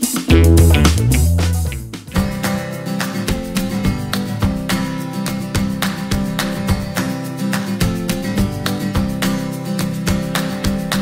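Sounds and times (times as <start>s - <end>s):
acoustic guitar strumming: 0.3s - 2.4s.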